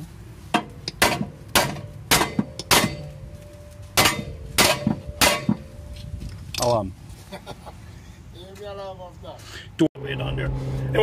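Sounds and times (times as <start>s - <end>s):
hammer striking metal: 0.5s - 3.2s, 3.9s - 5.8s.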